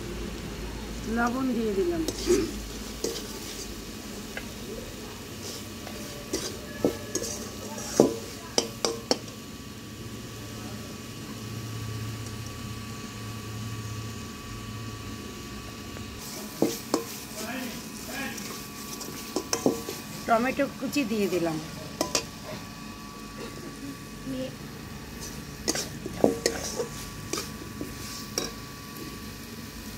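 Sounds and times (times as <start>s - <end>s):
spatula scraping metal pan: 5.4s - 8.2s, 25.2s - 28.6s.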